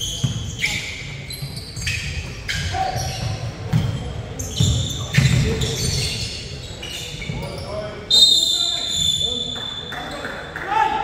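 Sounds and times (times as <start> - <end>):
shoe squeaks: 0.0 - 10.3
players' voices: 0.0 - 11.0
basketball bouncing: 3.2 - 6.0.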